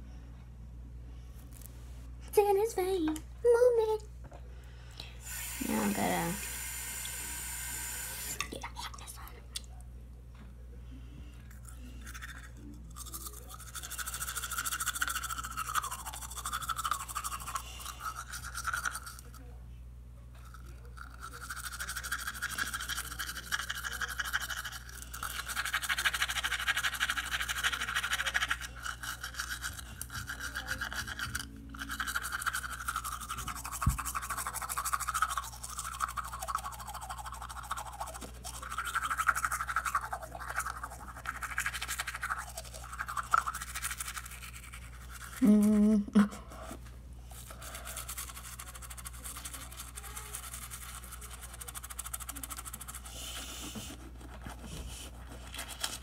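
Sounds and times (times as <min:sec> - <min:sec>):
toothbrush scrubbing teeth: 0:05.6 - 0:06.5, 0:11.4 - 0:19.6, 0:20.3 - 0:56.0.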